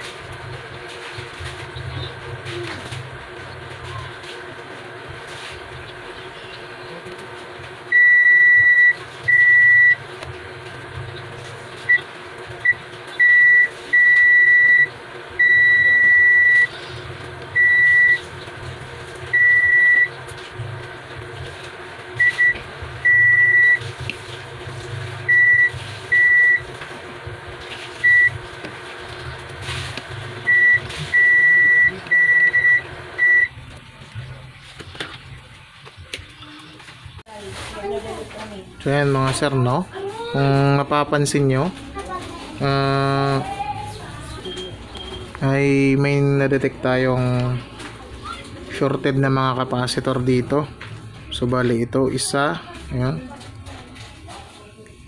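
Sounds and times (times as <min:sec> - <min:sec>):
multimeter continuity beeps: 0:07.9 - 0:10.0, 0:11.9 - 0:16.8, 0:17.5 - 0:18.3, 0:19.3 - 0:20.2, 0:22.2 - 0:23.9, 0:25.3 - 0:26.7, 0:28.0 - 0:28.4, 0:30.4 - 0:33.5.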